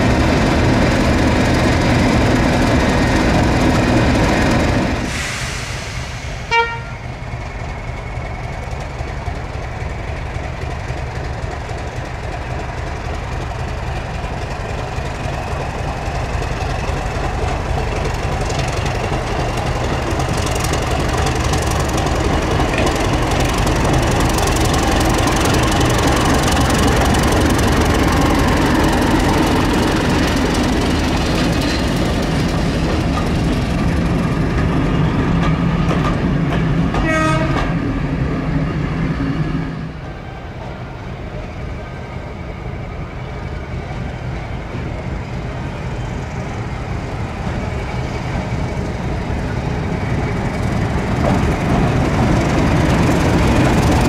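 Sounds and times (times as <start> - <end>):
diesel locomotive engine: 0.0 - 54.0
train coaches rolling by: 0.0 - 54.0
train horn toot: 6.5 - 7.0, 37.0 - 37.8.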